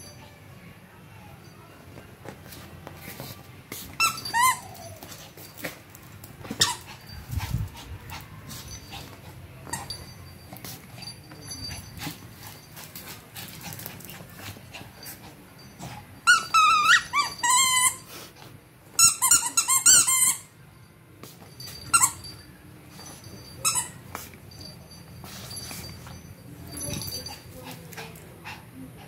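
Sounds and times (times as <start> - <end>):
dog whining: 16.3 - 18.1.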